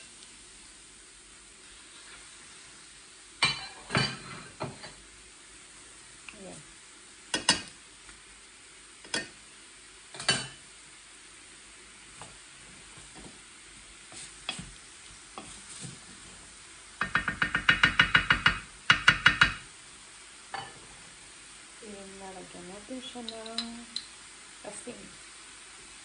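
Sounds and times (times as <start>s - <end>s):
food sizzling in a pan: 0.0s - 26.0s
wooden spatula scraping a pan: 15.4s - 16.4s
metal tongs clinking on pan: 23.2s - 24.1s.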